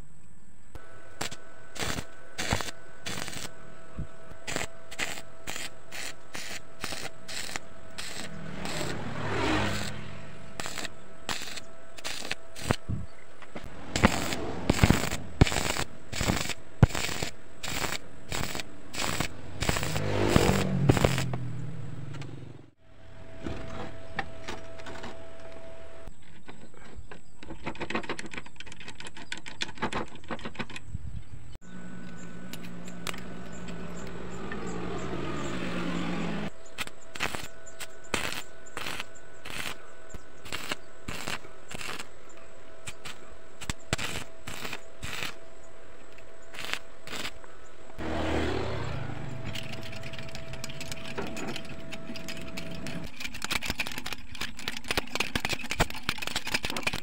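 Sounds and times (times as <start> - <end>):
arc welding crackle and pops: 0.7 - 3.6, 4.2 - 21.5, 36.7 - 45.4, 46.0 - 47.6, 49.5 - 57.0
roller chain clicking: 49.4 - 57.0.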